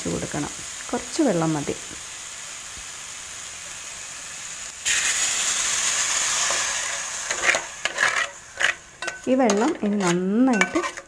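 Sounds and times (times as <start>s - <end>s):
coconut and sugar sizzling: 0.0s - 11.0s
water hissing on hot sugar: 0.0s - 11.0s
spatula scraping pan: 6.3s - 11.0s.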